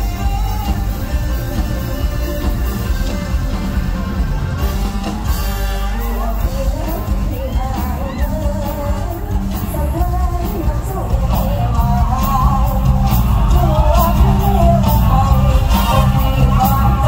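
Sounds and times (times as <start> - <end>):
amplified music with beat and bass: 0.0 - 17.0
woman singing into a microphone: 6.0 - 17.0.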